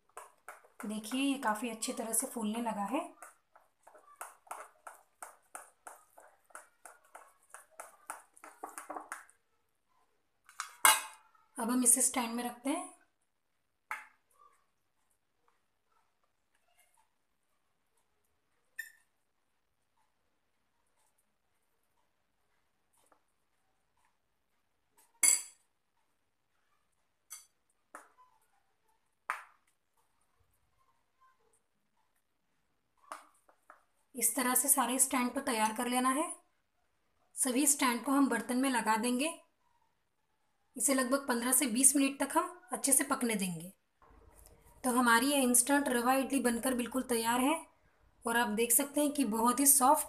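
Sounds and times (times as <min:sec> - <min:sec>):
spoon scraping batter in bowl: 0:00.1 - 0:09.4
metal spoon clinking: 0:10.5 - 0:11.2, 0:25.2 - 0:25.7, 0:27.3 - 0:27.6.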